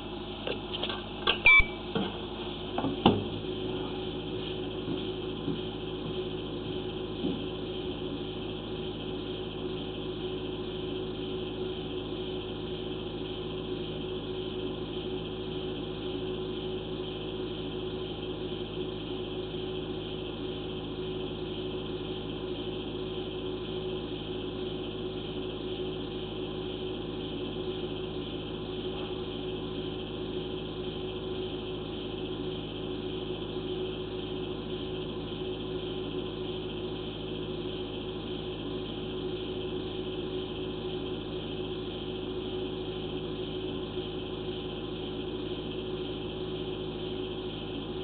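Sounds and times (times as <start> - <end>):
electrical hum and hiss: 0.0 - 48.0
fixed electronic tones: 1.4 - 1.9.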